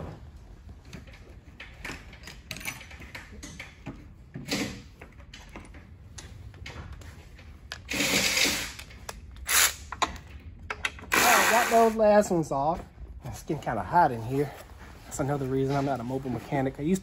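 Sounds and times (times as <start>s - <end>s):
tools clattering against metal: 0.9s - 7.9s.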